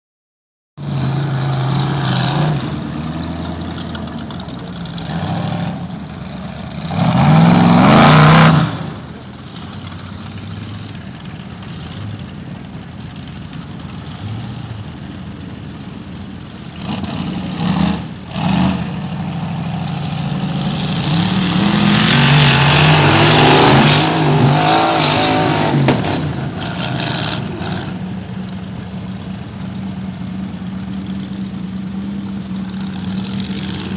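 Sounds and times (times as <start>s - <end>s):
buggy engine revving hard: 0.8s - 3.9s, 4.8s - 9.1s, 16.7s - 28.2s.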